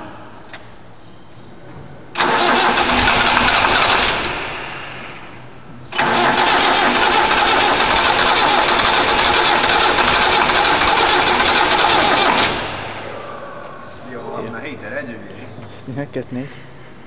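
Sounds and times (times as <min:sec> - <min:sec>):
truck engine running: 0:05.9 - 0:13.1.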